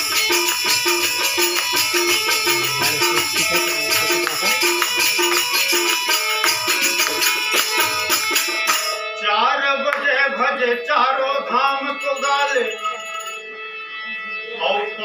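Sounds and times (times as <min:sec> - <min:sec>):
repeated melodic note: 0:00.0 - 0:09.0
jingling percussion: 0:00.0 - 0:09.3, 0:10.4 - 0:14.3.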